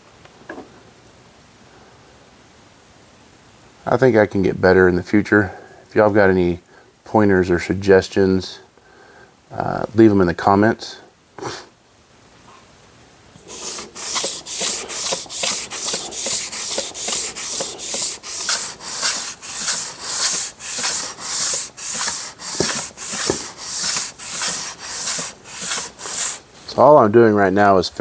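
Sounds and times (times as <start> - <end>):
hand plane rasping on sandpaper: 13.4 - 26.4.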